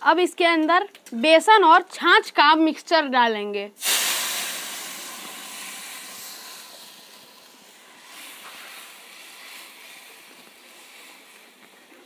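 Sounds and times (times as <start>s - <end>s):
liquid being poured: 3.8s - 11.0s
hot oil sizzling: 3.8s - 12.0s.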